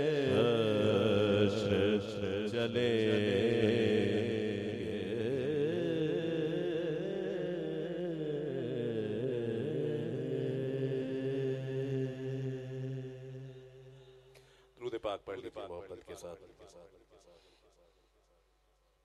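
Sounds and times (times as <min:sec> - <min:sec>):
man singing into a microphone: 0:00.0 - 0:12.6.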